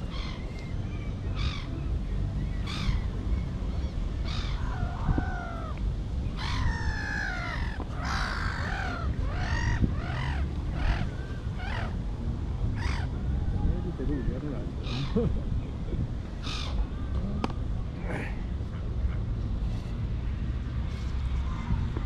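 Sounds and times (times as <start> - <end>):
birds calling harshly: 0.0 - 1.8, 2.4 - 12.0, 12.8 - 13.2, 14.7 - 16.9.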